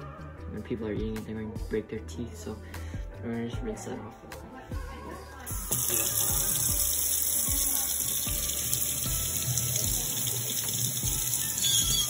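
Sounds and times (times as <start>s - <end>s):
faucet running into steel sink: 5.6s - 12.0s
hands rinsing shellfish: 5.6s - 12.0s.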